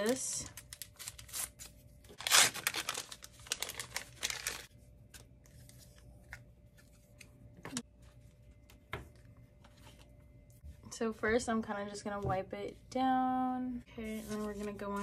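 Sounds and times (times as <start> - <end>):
packet crinkling and tearing: 0.1 - 4.7.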